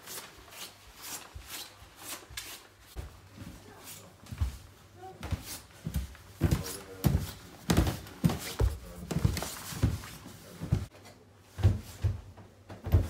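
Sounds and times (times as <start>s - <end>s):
footsteps on wooden stairs: 4.2s - 10.9s, 11.5s - 13.0s.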